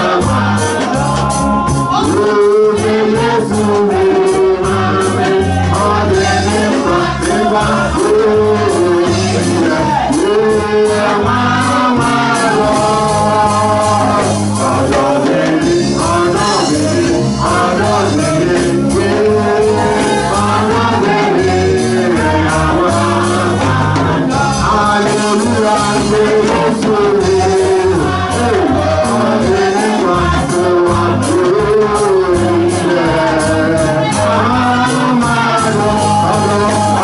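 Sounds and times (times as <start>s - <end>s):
live band playing: 0.0s - 37.0s
woman singing through microphone: 0.0s - 37.0s.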